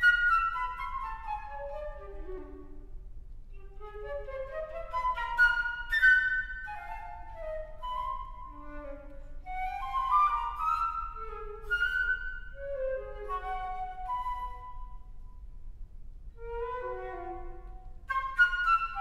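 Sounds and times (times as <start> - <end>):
solo flute playing: 0.0 - 15.5, 16.3 - 19.0.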